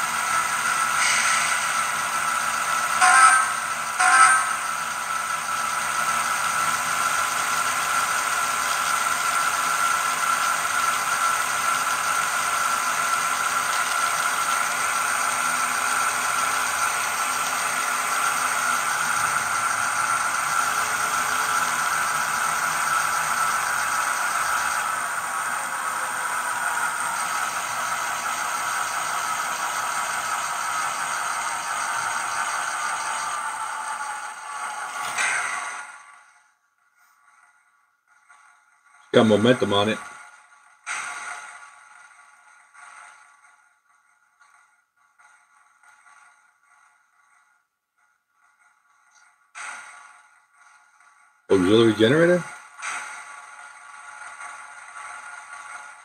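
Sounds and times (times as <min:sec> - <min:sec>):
tinny diesel locomotive engine: 0:00.0 - 0:56.0.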